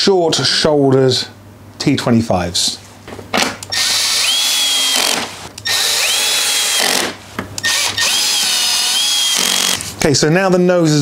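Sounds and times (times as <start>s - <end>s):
electric screwdriver whirring: 3.7s - 9.8s.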